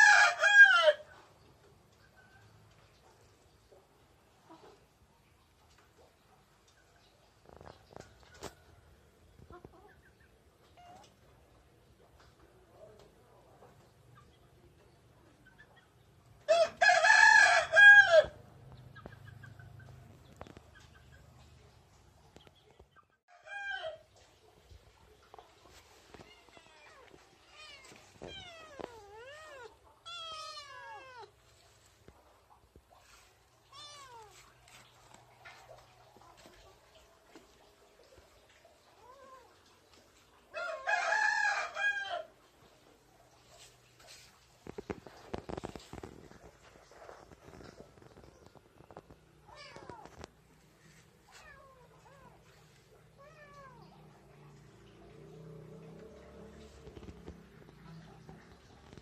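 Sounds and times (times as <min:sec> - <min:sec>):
kittens meowing: 0:26.2 - 0:31.4.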